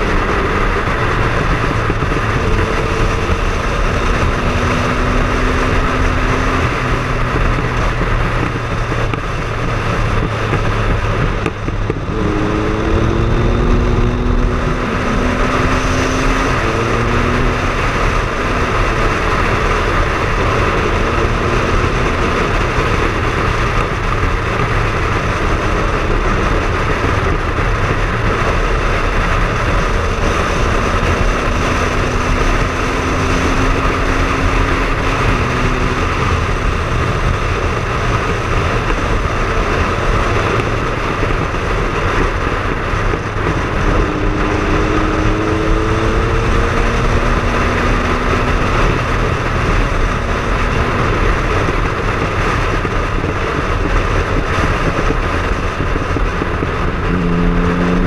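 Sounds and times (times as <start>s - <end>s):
motorcycle engine cruising: 0.0s - 58.0s
road noise: 0.0s - 58.0s
wind rushing: 0.0s - 58.0s.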